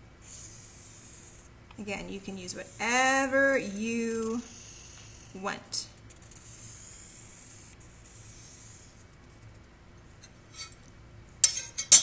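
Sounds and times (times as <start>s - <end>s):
felt-tip marker on paper: 0.2s - 9.6s.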